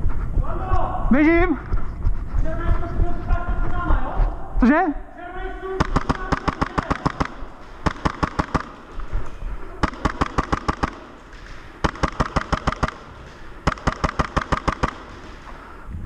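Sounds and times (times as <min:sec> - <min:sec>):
airsoft gun firing bursts: 0:05.7 - 0:09.1, 0:09.8 - 0:15.8.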